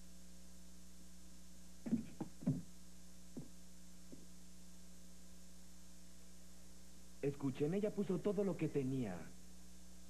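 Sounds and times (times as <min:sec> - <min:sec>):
steady low hum: 0:00.0 - 0:10.0
short thumps: 0:01.9 - 0:02.7.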